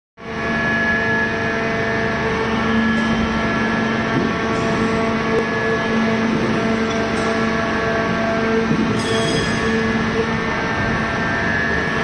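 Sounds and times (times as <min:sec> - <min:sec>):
hydraulic unit hum and whine: 0:00.2 - 0:12.0.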